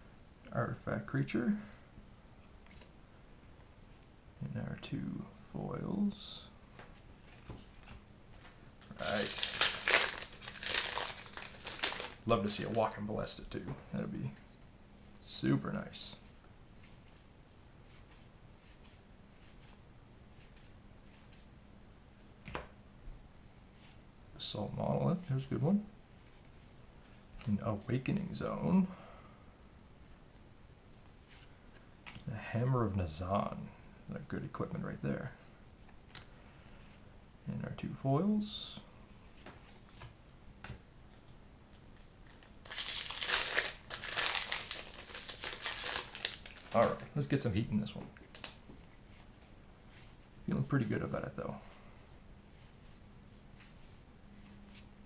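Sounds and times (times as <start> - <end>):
foil wrapper crinkling: 8.8 - 12.8, 41.9 - 47.1.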